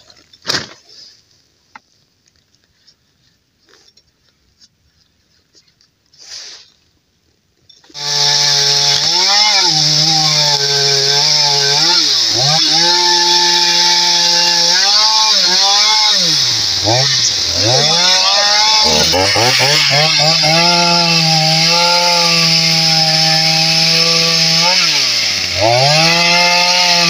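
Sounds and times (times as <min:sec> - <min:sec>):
chainsaw cutting wood: 0:07.8 - 0:27.0.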